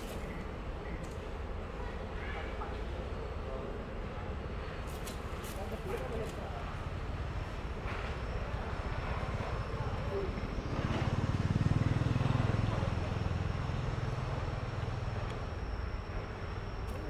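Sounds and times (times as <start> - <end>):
passing vehicle engine hum: 5.7 - 16.9.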